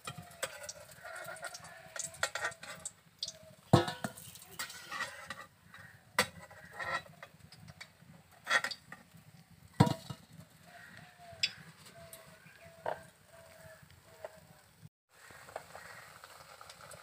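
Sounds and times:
metal spatula clanking on wok: 0.1s - 5.5s.

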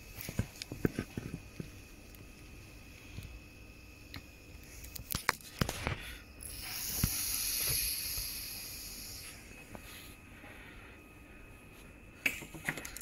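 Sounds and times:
aerosol can spraying hiss: 6.5s - 9.4s.

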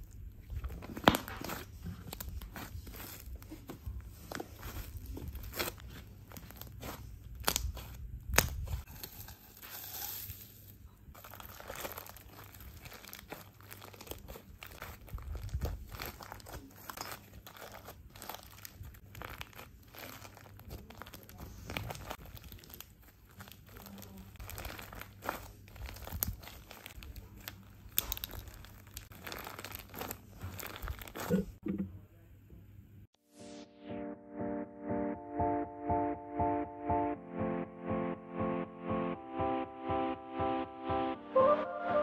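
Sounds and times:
slime squishing: 0.0s - 10.2s, 11.1s - 31.6s.

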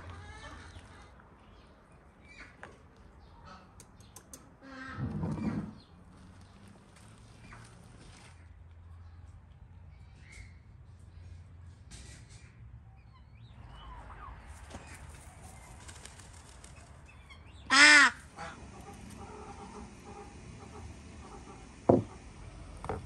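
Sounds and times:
loud nasal fowl honk: 17.7s - 21.7s
faint clucks and chirps: 18.4s - 23.0s.

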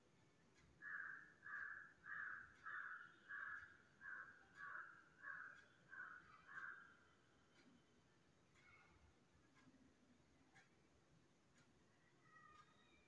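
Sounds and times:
bird calling: 0.8s - 6.9s.

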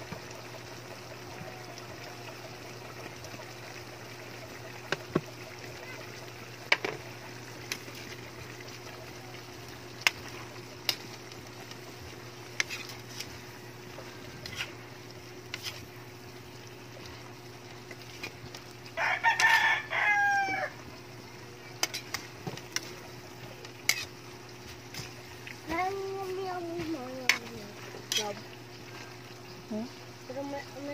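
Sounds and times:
rooster crowing: 18.9s - 20.8s.

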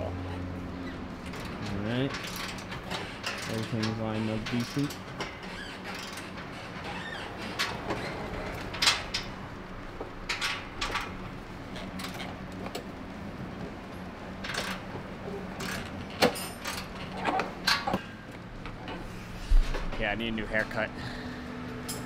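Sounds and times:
steady low hum: 6.3s - 22.0s.

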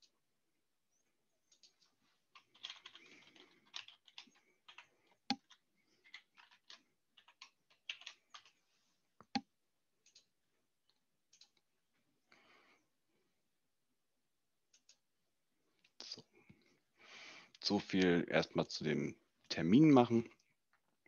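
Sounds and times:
keyboard typing clicks: 2.4s - 8.5s.

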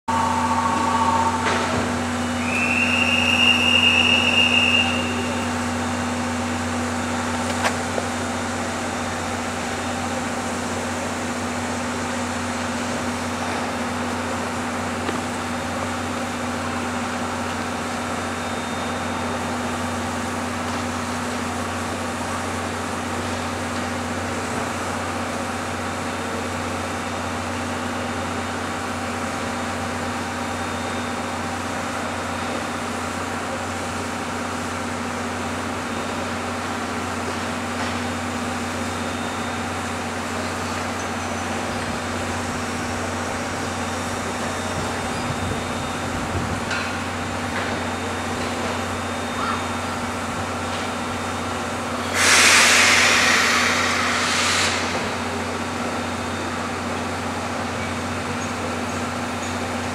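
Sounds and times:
shrill steam whistle: 0.1s - 6.0s, 52.0s - 55.4s
steam locomotive drone and hiss: 0.1s - 59.9s.

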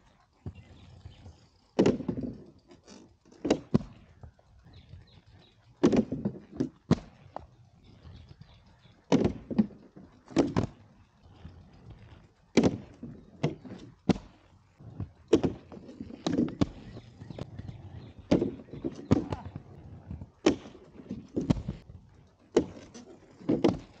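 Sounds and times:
skates knocking on wooden ledge: 5.8s - 7.5s, 9.1s - 10.8s, 12.5s - 21.8s, 22.5s - 24.0s.

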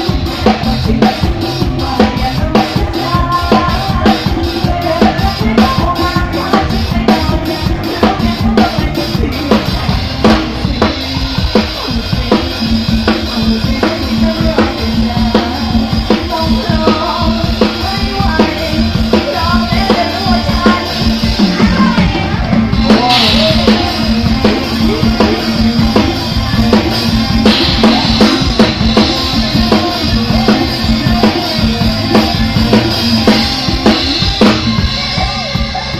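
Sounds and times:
drum kit beat: 0.0s - 35.9s
loud amplified dance music: 17.8s - 35.9s.

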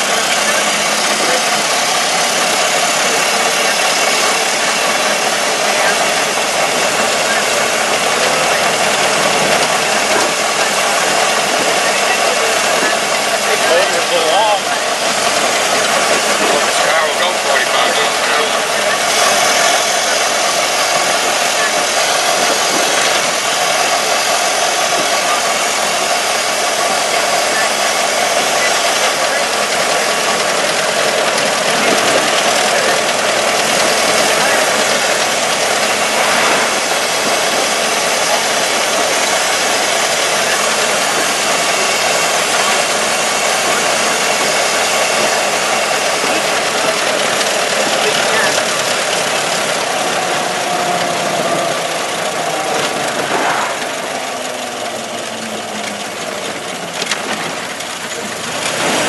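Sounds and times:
car engine running: 0.0s - 59.0s
wind and road noise: 35.6s - 43.2s, 43.8s - 59.0s.

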